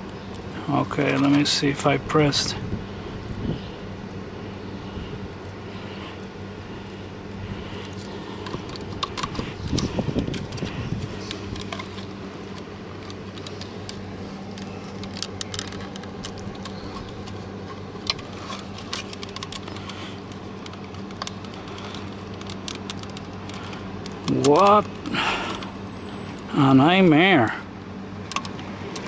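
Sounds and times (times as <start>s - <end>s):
steady low hum: 0.0s - 29.0s
plastic connectors clicking: 7.8s - 25.1s, 28.2s - 29.0s.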